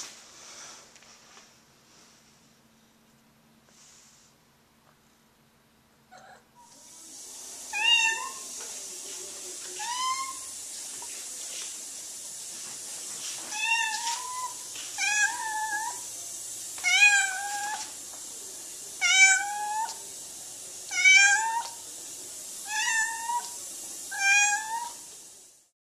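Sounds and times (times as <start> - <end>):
cat meowing loudly: 7.7 - 8.5, 9.8 - 10.5, 13.5 - 16.0, 16.8 - 17.9, 19.0 - 20.0, 20.9 - 21.8, 22.6 - 25.0.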